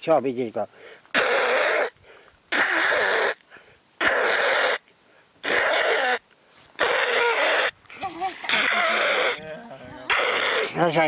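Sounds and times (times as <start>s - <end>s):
man imitating bird calls: 1.1s - 3.4s, 4.0s - 7.8s, 8.4s - 11.0s.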